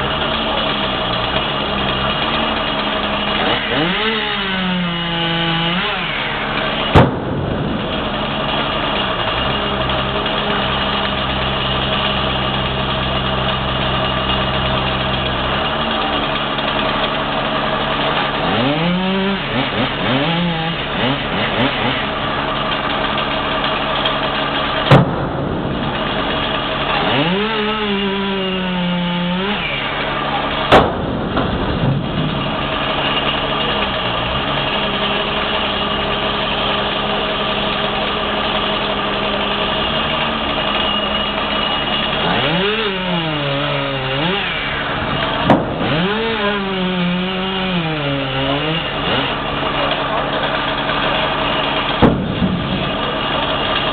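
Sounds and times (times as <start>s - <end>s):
truck engine idling and revving: 0.0s - 53.9s
sharp knocks: 6.8s - 9.4s, 24.8s - 27.4s, 30.7s - 33.4s, 45.4s - 46.2s, 51.9s - 53.9s.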